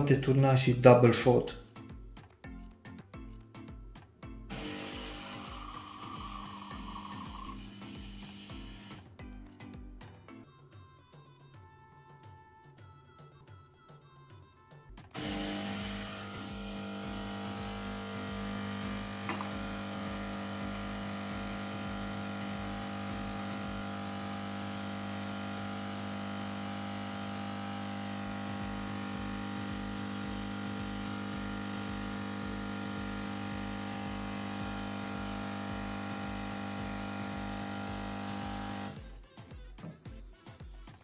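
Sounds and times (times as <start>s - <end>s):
espresso machine humming: 4.5s - 9.1s, 15.2s - 39.0s.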